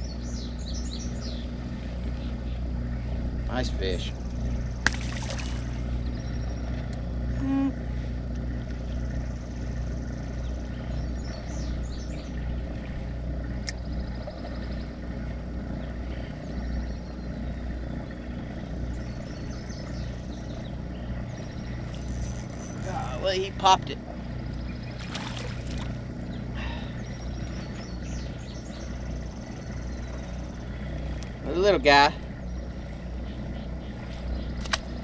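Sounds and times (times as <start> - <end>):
boat motor humming: 0.0 - 35.0
fish splashing into water: 4.8 - 5.8, 24.9 - 26.0.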